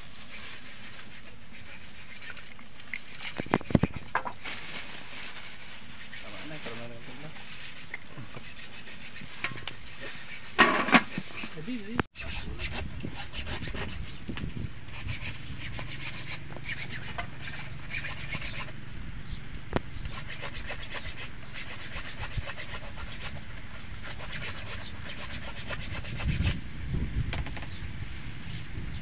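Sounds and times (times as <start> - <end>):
knife scraping fish scales: 0.1 - 4.1, 5.8 - 11.5, 14.9 - 18.8, 20.1 - 26.5.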